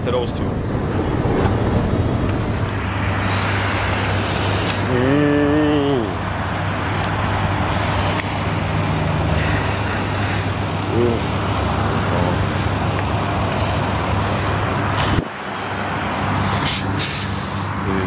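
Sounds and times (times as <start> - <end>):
diesel truck engine running: 0.0 - 15.2
road noise: 0.0 - 18.0.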